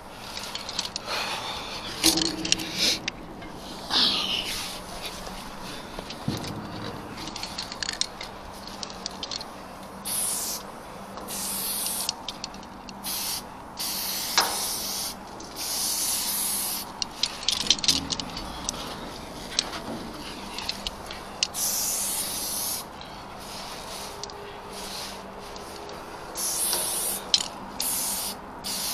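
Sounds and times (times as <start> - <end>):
small clicks and handling noises: 0.3 - 1.1, 6.0 - 9.9, 12.0 - 13.0, 16.9 - 21.6
spray paint can hissing: 10.0 - 10.6, 11.3 - 12.2, 13.0 - 17.0, 21.4 - 22.9, 26.4 - 28.9.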